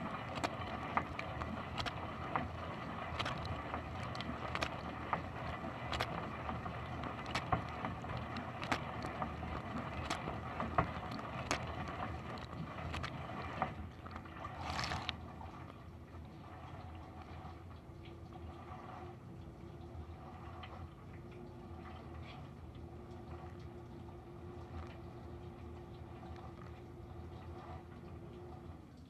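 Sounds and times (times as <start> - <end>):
water spraying and splashing: 0.0 - 15.2
dishwasher pump humming: 0.0 - 29.0
water ticks: 0.0 - 29.0.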